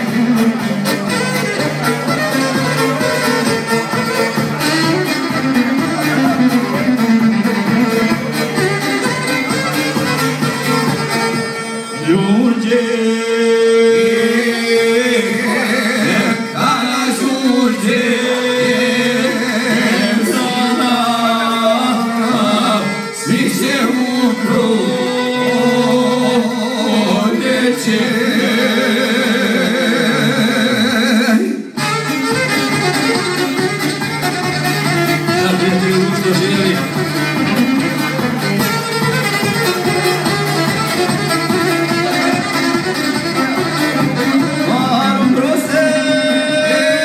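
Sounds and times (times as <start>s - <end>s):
plucked string instrument: 0.0s - 12.8s, 14.0s - 31.2s, 31.8s - 47.0s
violin: 0.0s - 29.6s, 31.8s - 47.0s
men singing folk song: 12.1s - 31.6s, 44.7s - 47.0s.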